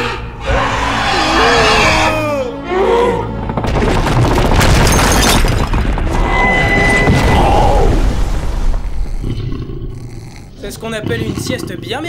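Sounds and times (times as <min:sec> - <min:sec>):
background music: 0:00.0 - 0:08.1
heavy crash and rumble: 0:03.4 - 0:09.2.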